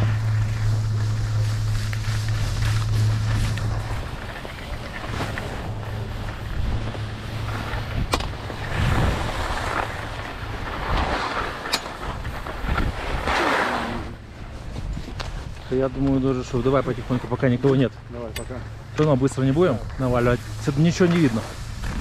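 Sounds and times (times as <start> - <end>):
gloved hand rustling: 0.0 - 10.7
wind rumbling on microphone: 0.0 - 18.1, 18.7 - 22.0.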